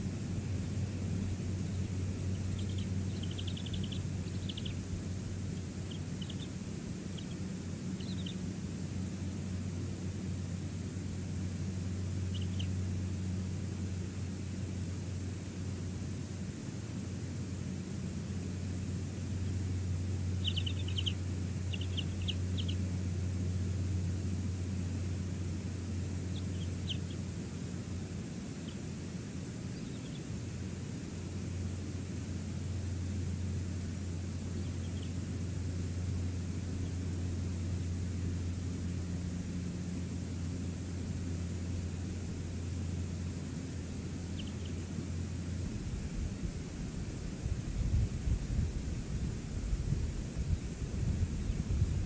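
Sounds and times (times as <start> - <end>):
low hum: 0.0 - 52.0
steady low rumble: 0.0 - 52.0
eagle chittering: 0.6 - 8.5, 12.2 - 12.8, 20.2 - 23.0, 26.2 - 27.3, 44.2 - 44.9.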